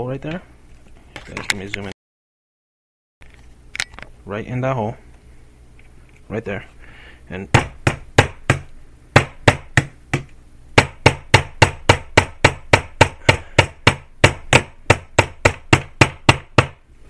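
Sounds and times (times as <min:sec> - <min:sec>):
hammer tapping a nail: 0:07.6 - 0:16.8.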